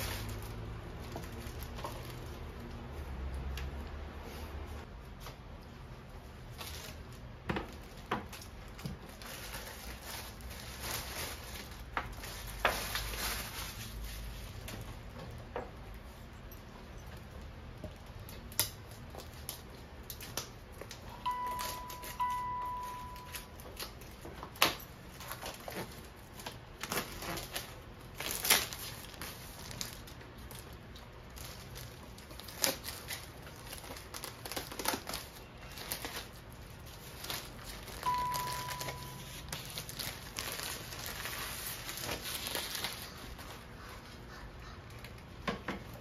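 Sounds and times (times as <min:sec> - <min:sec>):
plastic wrapping crinkling: 0:00.0 - 0:44.0
short steady beep: 0:21.2 - 0:23.6, 0:38.0 - 0:39.5.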